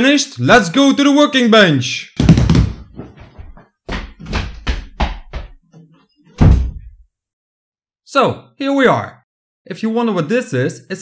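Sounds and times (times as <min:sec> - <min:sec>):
sharp knocks: 0:02.2 - 0:05.6, 0:06.4 - 0:07.0
deep thump: 0:06.4 - 0:07.0.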